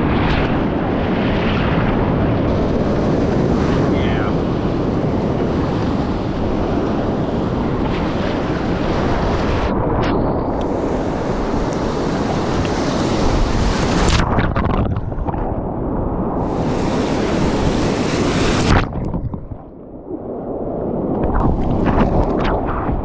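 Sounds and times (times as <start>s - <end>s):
waves splashing around kayak: 0.0s - 23.0s
whitewater rapid rushing: 10.7s - 14.2s, 16.4s - 18.8s.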